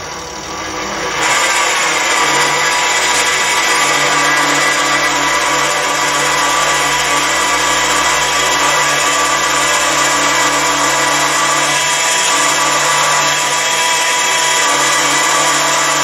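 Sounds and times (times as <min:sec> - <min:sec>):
lathe motor and gears running: 0:00.0 - 0:16.0.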